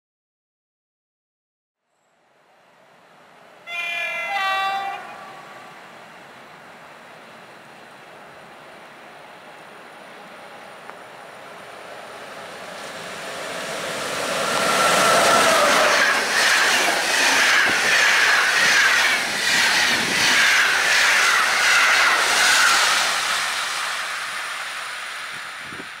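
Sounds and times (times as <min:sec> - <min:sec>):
train passing at speed: 0:02.2 - 0:26.0
train wheels clickety-clack: 0:12.5 - 0:26.0.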